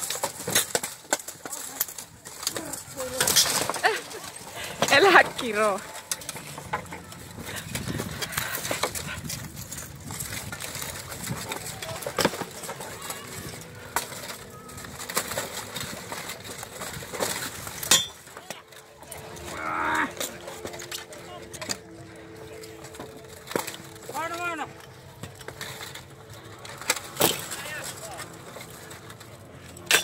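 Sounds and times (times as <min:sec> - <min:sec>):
weapons clanking on steel armour: 0:17.3 - 0:21.8.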